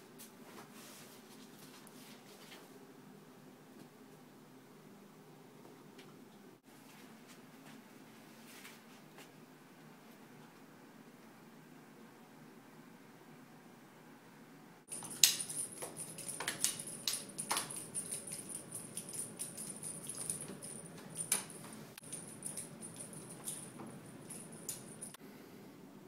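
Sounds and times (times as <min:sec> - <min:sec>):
cat toy rattling and jingling: 0:14.9 - 0:25.2.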